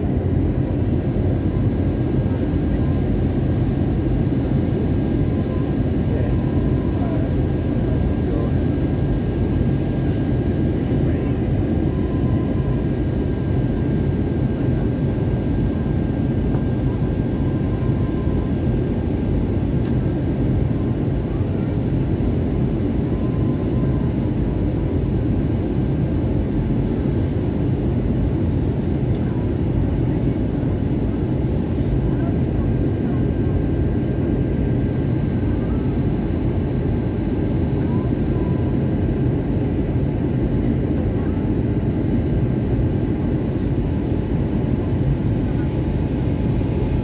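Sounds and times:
airliner cabin roar: 0:00.0 - 0:47.0
faint steady whine: 0:00.0 - 0:47.0.

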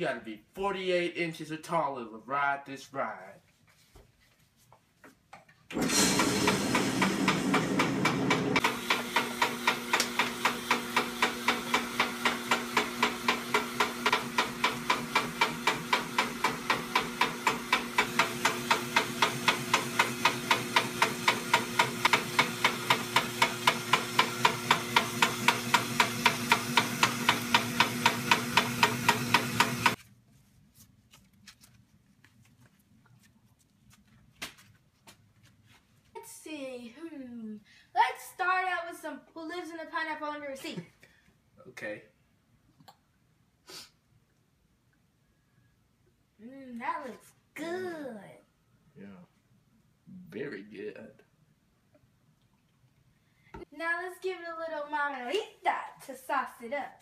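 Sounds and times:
ice shaver motor humming: 0:05.7 - 0:30.0.

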